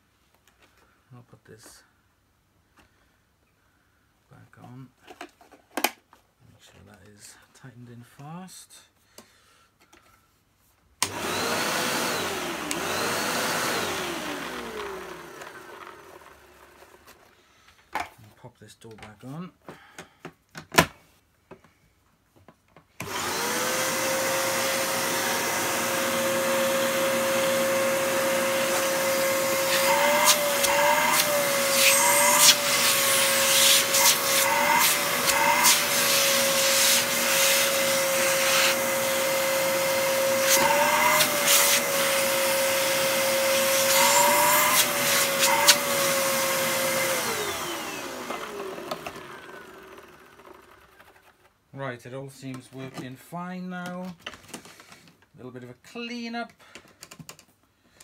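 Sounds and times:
vacuum cleaner whine: 0:11.0 - 0:17.2, 0:23.0 - 0:51.0.

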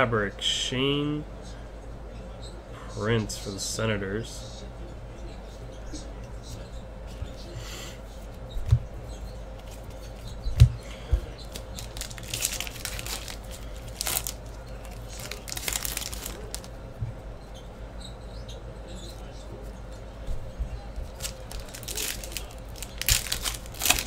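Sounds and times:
foil wrapper tearing and crinkling: 0:11.5 - 0:16.7, 0:21.2 - 0:24.0.

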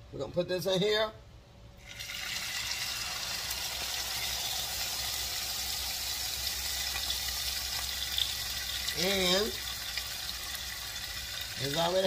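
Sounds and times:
corn sizzling in a skillet: 0:01.8 - 0:12.0.

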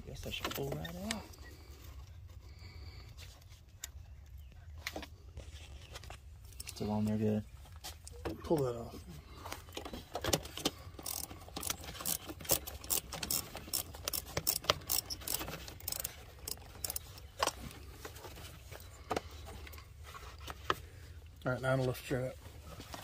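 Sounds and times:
socket ratchet clicking: 0:11.0 - 0:17.2.

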